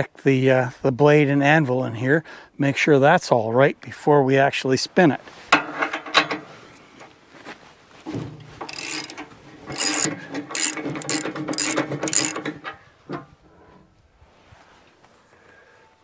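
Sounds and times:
ratchet wrench clicking: 8.6s - 12.6s.

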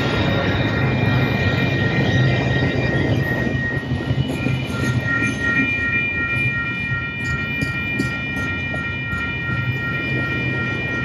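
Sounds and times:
high-pitched steady tones: 0.0s - 11.0s
train wheels rumbling on rail: 0.0s - 11.0s.

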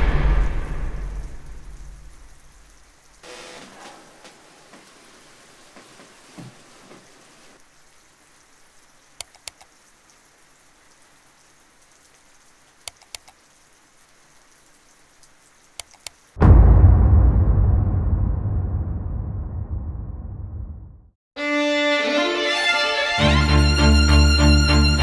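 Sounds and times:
faint steady hiss: 0.9s - 16.4s
computer mouse clicks: 9.2s - 9.7s, 12.8s - 13.4s, 15.8s - 16.2s.

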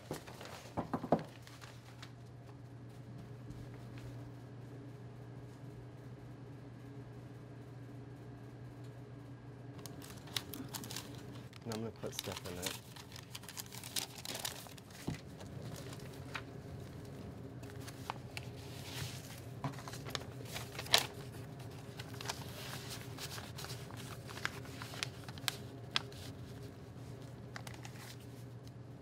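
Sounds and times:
paper rustling and crinkling: 0.0s - 2.2s, 9.8s - 28.8s
steady low hum: 0.0s - 29.0s.

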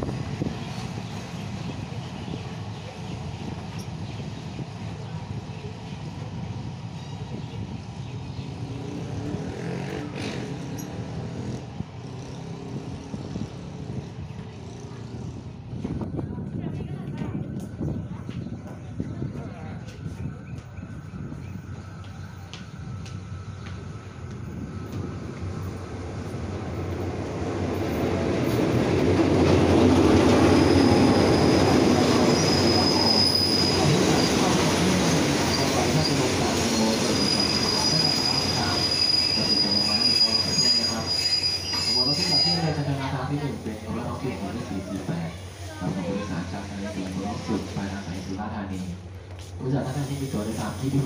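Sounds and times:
diesel locomotive and carriages running: 0.0s - 51.0s
thin high squeal: 37.1s - 42.8s.

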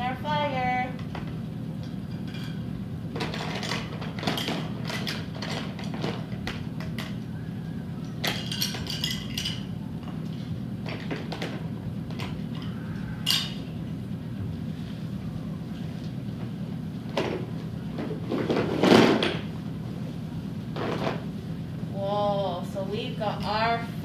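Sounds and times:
low hum: 0.0s - 18.7s.

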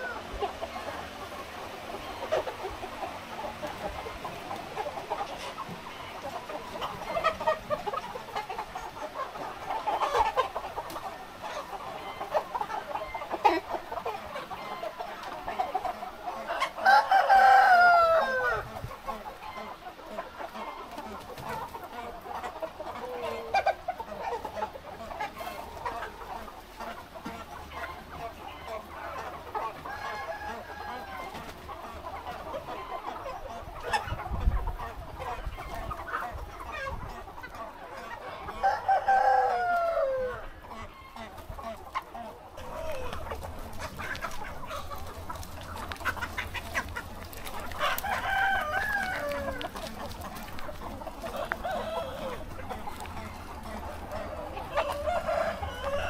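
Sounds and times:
chickens clucking: 0.0s - 56.0s
rooster crowing: 16.8s - 18.7s, 38.6s - 40.5s, 47.8s - 49.7s, 51.3s - 52.5s, 54.6s - 56.0s.

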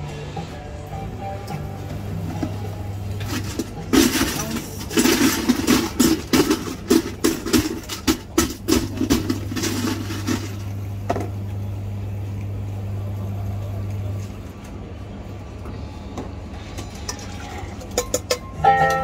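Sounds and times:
ice cubes rattling in plastic tray: 3.3s - 10.6s.

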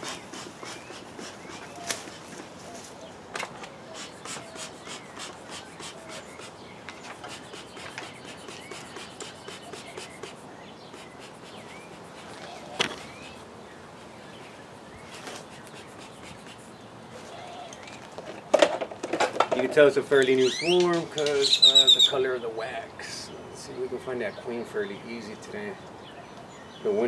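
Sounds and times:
bellows puffing: 0.0s - 2.4s, 3.8s - 13.4s, 15.0s - 17.8s
bird chirps: 0.0s - 18.1s, 20.1s - 27.0s.

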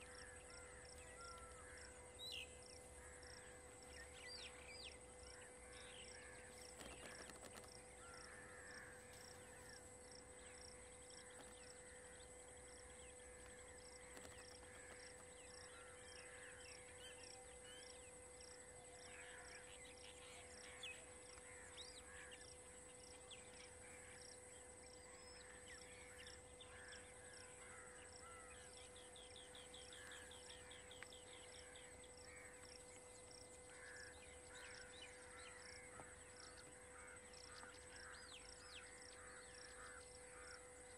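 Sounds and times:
insect chirping: 0.0s - 40.9s
bird calls: 18.7s - 40.9s.

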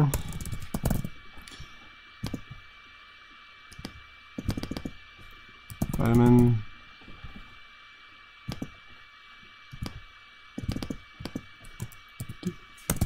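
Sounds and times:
computer keyboard keystrokes: 0.1s - 1.1s, 3.8s - 4.9s, 5.7s - 6.1s, 10.6s - 13.0s
mouse clicks: 8.5s - 8.7s, 10.6s - 13.0s.

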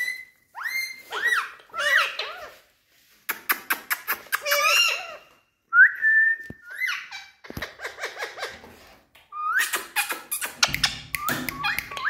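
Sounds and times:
parakeets whistling and calling: 6.6s - 8.6s, 9.4s - 12.0s.

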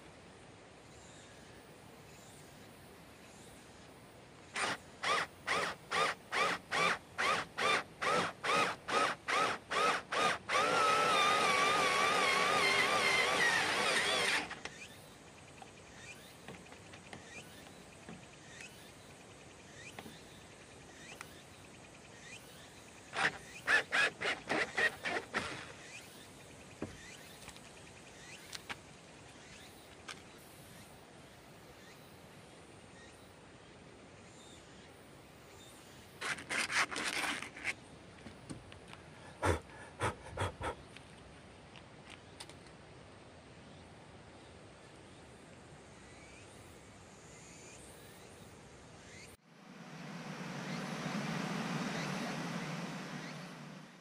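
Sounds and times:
drill hole saw cutting plywood: 4.6s - 14.6s, 23.2s - 25.8s.

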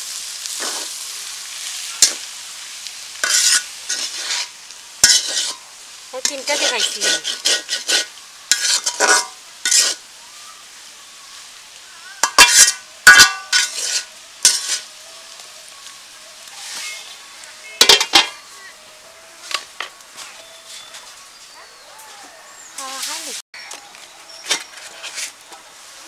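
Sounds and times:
faint sizzle: 0.0s - 26.0s
metal spatula scraping a wok: 3.2s - 5.6s, 6.2s - 10.0s, 12.2s - 14.9s, 16.6s - 17.2s, 17.8s - 18.3s, 24.3s - 25.6s.

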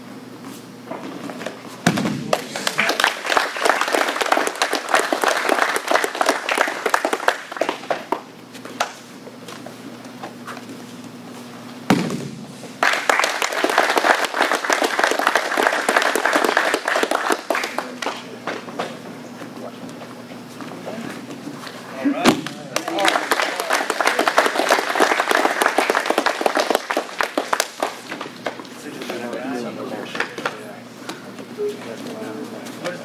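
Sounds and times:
crowd applauding: 2.3s - 8.2s, 12.8s - 18.3s, 22.7s - 28.6s
single thump: 11.9s - 12.5s.

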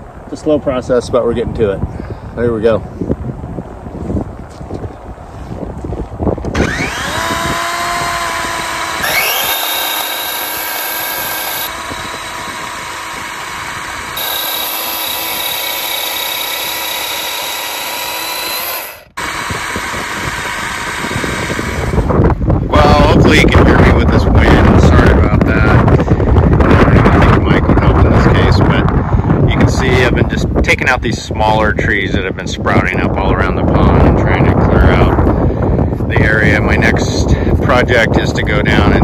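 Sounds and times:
electric chainsaw cutting log: 6.4s - 23.1s.

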